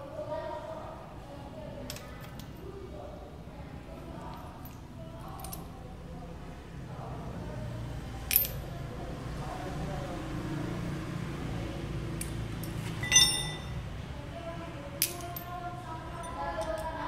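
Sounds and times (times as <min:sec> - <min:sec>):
metal tools clinking: 0:12.6 - 0:13.8.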